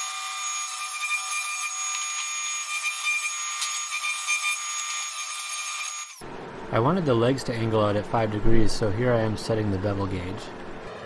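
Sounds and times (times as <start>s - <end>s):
table saw whine: 0.0s - 6.2s.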